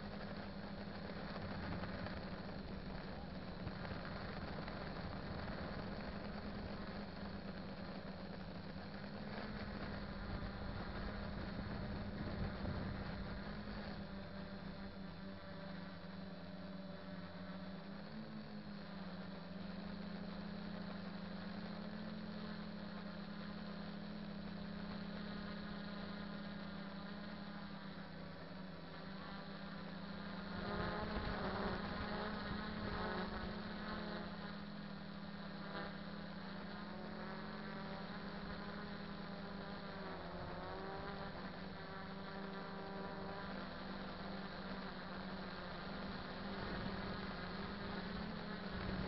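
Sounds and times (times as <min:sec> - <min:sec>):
drone motors buzzing: 0:00.0 - 0:49.0.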